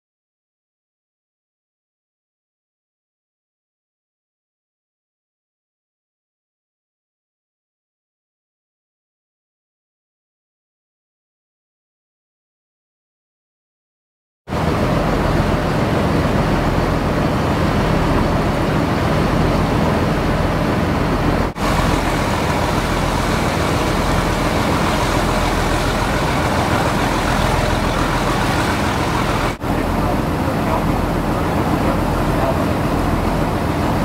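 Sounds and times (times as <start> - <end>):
boat engine running: 14.5 - 34.0
rush of water wash: 14.5 - 34.0
wind: 14.5 - 34.0.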